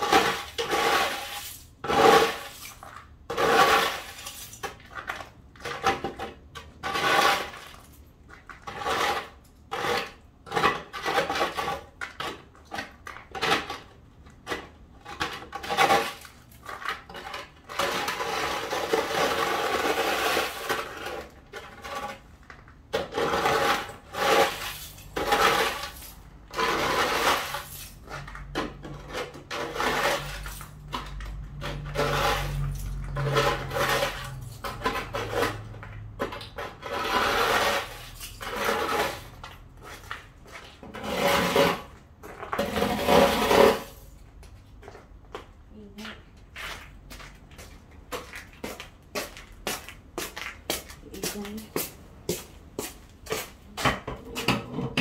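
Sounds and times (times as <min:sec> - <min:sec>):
snow shovel scraping ice: 0:00.0 - 0:04.6, 0:06.8 - 0:07.8, 0:08.7 - 0:11.9, 0:15.2 - 0:22.2, 0:23.0 - 0:28.0, 0:29.2 - 0:30.7, 0:31.6 - 0:35.8, 0:36.6 - 0:40.2, 0:40.8 - 0:44.1.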